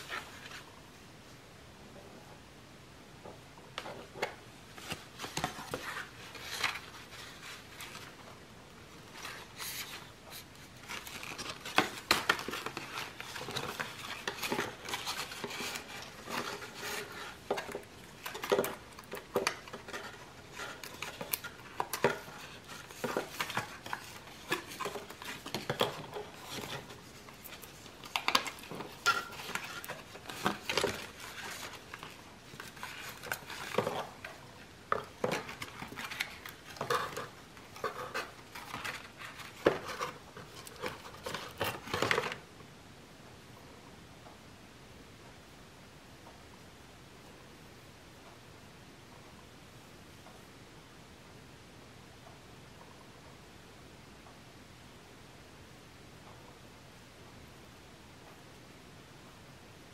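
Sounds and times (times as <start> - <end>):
paper and plastic rustling: 0.0 - 0.8, 3.8 - 42.5.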